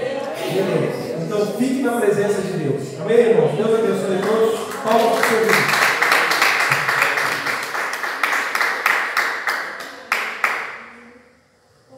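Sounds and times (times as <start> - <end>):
people applauding: 4.1 - 10.9.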